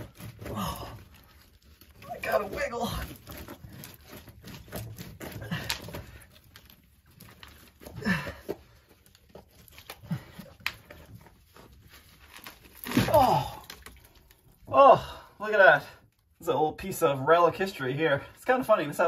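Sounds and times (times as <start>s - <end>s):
grunts of effort: 0.4s - 1.1s, 7.9s - 8.6s, 12.9s - 13.7s
concrete and gravel scraping: 2.0s - 8.4s.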